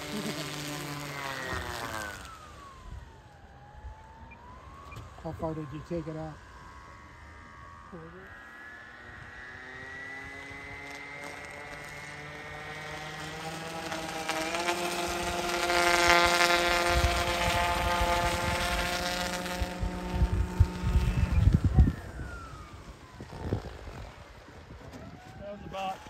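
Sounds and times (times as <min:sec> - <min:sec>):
spray hissing off floats: 0:00.0 - 0:02.3
electric motor and propeller whining: 0:00.0 - 0:26.0.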